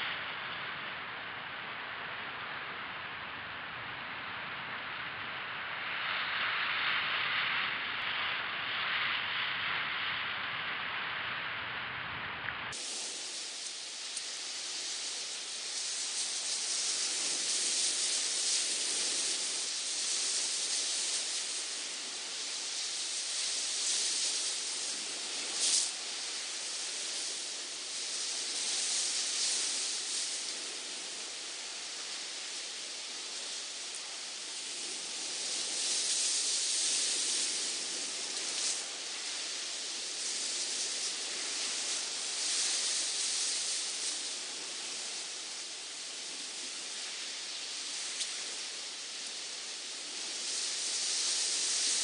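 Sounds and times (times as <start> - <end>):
hissy water wash: 4.5 - 9.1, 12.7 - 52.0
sea surf breaking over rocks: 12.8 - 52.0.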